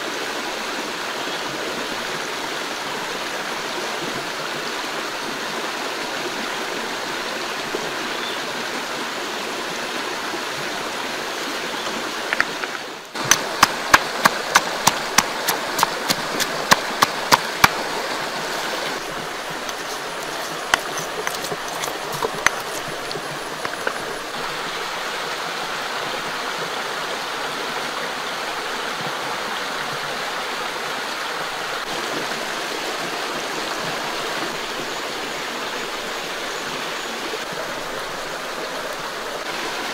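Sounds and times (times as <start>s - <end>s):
shallow rocky stream flowing: 0.0s - 39.9s.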